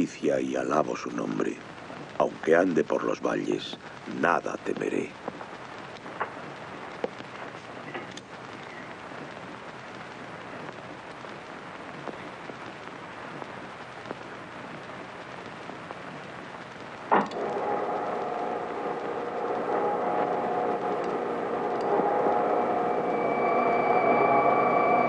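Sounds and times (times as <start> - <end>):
film soundtrack crackle and hiss: 0.0 - 25.0
loud electrical hum: 16.9 - 25.0.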